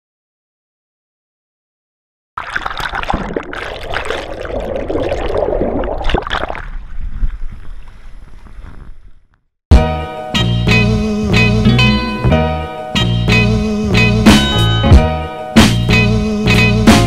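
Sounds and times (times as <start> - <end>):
sea water sloshing and splashing: 2.4 - 8.0
wind buffeting microphone: 6.8 - 9.3
guitar music: 9.7 - 17.0.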